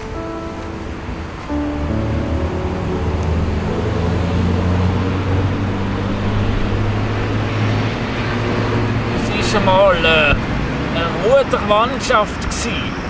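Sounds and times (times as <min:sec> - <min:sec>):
soft music notes: 0:00.0 - 0:09.9
road traffic rumble: 0:00.0 - 0:13.0.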